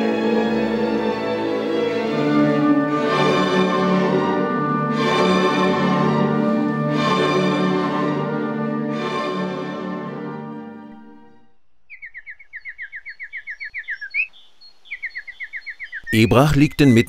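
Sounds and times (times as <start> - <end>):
orchestral strings sustained chords: 0.0 - 11.6.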